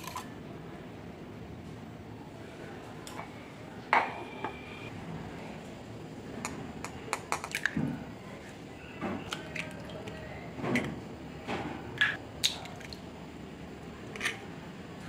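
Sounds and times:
egg cracking taps: 6.8 - 7.8.

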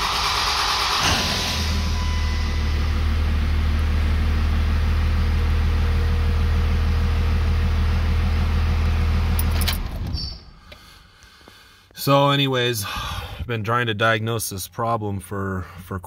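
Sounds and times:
diesel engine idling: 0.0 - 11.7.

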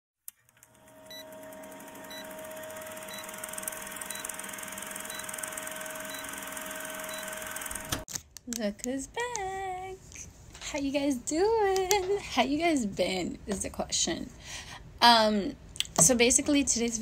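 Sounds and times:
steady hum: 0.7 - 8.1.

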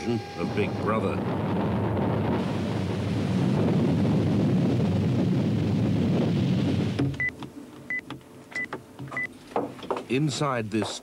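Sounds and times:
loud low rumble: 0.4 - 7.0.

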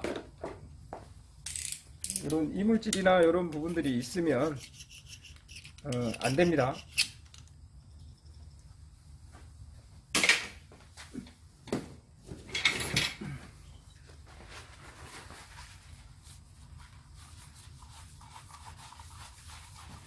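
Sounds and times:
rag rubbing on metal: 3.6 - 7.0
rustle: 12.2 - 20.0.

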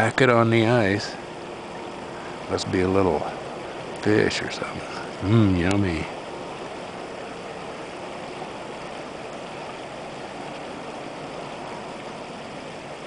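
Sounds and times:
creek water rushing: 0.0 - 13.0.

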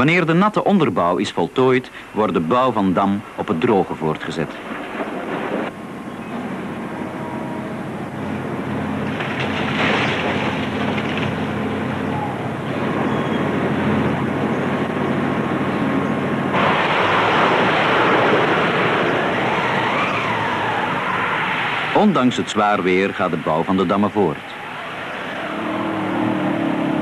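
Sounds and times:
wind: 0.0 - 27.0
heavy diesel machinery running: 5.7 - 20.6.

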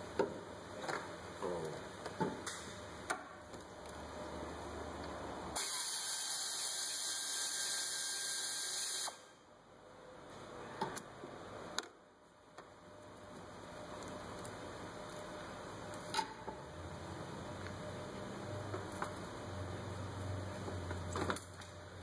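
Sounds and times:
pneumatic air ratchet whirring: 5.6 - 9.3.

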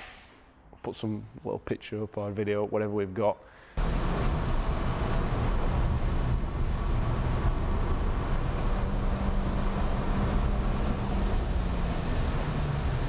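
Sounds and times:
race car engine running hard: 3.8 - 13.0
wind and road noise: 3.8 - 13.0.

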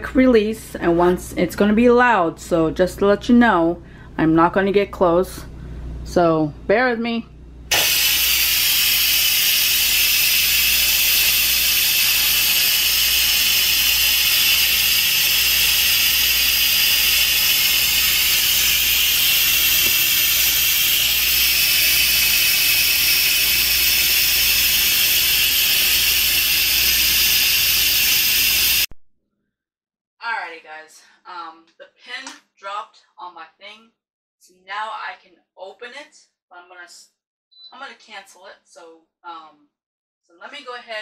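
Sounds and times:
pressure cooker steam hiss: 7.7 - 28.9.

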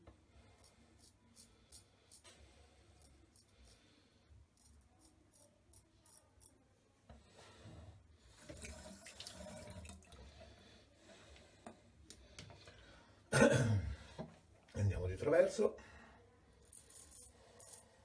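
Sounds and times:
razor scraping: 0.5 - 6.6, 16.6 - 18.0.

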